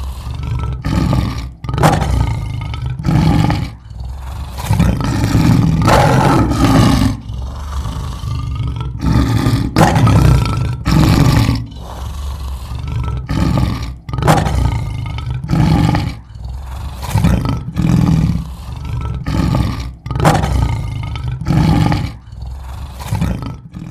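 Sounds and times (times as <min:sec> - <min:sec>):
deep roar-like animal calls: 0:00.0 - 0:23.9.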